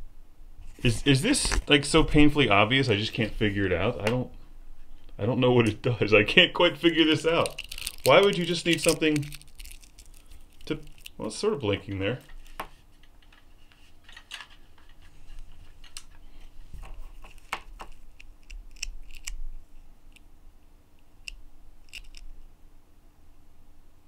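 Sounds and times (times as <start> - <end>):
plastic strap charm clicking: 7.4 - 11.2.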